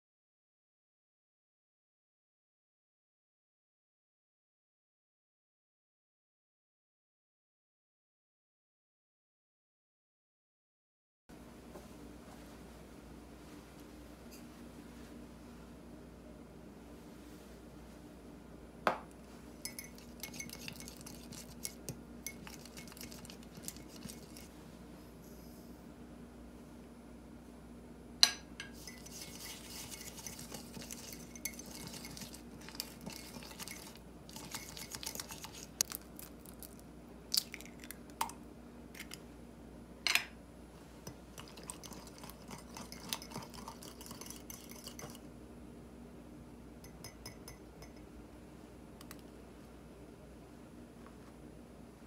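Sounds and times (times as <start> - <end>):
spoon clinking against mug: 19.6 - 24.5, 28.6 - 35.7, 41.4 - 45.2, 46.8 - 48.1
spoon scraping in a mug: 19.6 - 24.5, 28.6 - 35.9, 41.4 - 45.3, 46.9 - 48.0.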